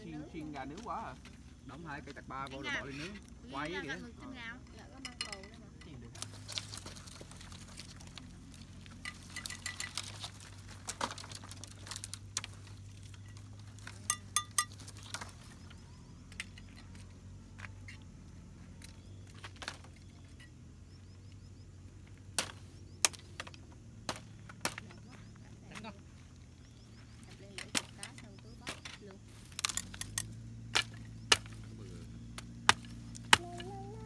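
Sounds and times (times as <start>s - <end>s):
faint low hum: 0.0s - 34.0s
tableware clinking: 5.0s - 5.6s, 14.1s - 14.8s.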